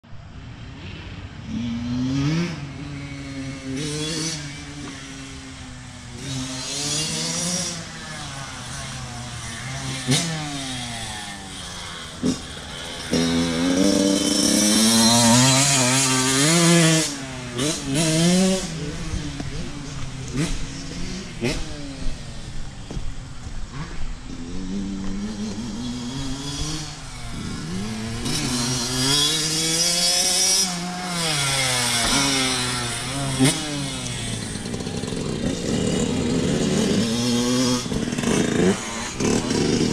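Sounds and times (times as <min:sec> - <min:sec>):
dirt bike revving: 0:00.6 - 0:39.9.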